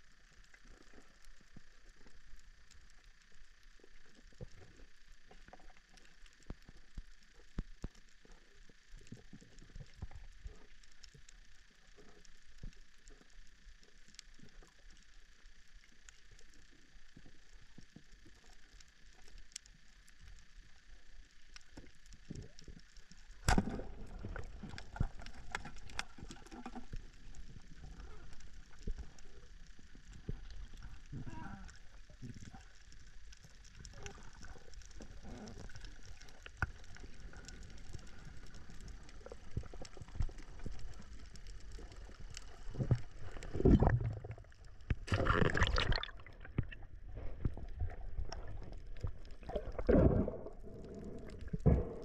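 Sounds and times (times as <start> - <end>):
underwater clicks and crackles: 0.0 - 52.0.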